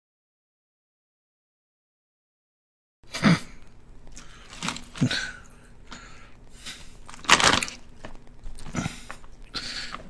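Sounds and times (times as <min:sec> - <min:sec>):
chip bag crackling: 0:04.2 - 0:05.4, 0:07.0 - 0:09.2.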